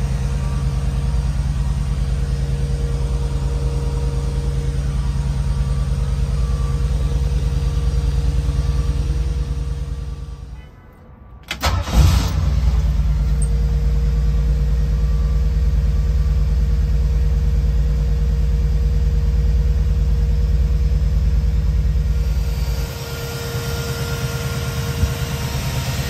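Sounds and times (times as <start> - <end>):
engine idling: 0.0 - 26.0
engine cranking and revving: 11.5 - 13.6.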